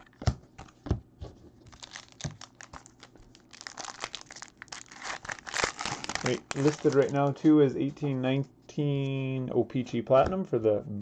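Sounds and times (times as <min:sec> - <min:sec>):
foil wrapper crinkling and tearing: 0:01.7 - 0:07.3.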